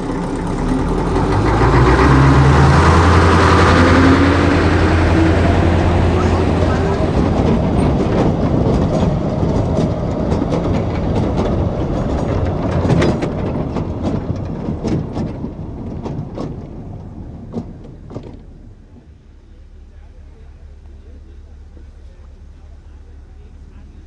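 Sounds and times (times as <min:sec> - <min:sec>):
train wheels clattering over rail joints: 0:00.0 - 0:19.2.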